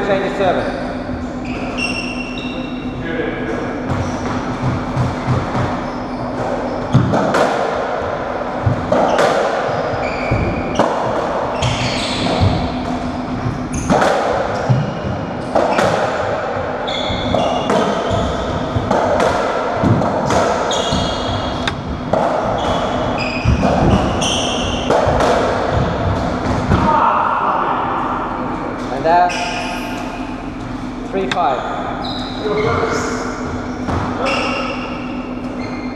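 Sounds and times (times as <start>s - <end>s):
ball hitting rackets and walls: 3.8s - 27.1s, 33.5s - 35.4s
shoes squeaking on wooden floor: 9.0s - 10.9s, 11.5s - 14.0s, 16.8s - 18.9s, 20.7s - 21.8s, 22.5s - 24.9s.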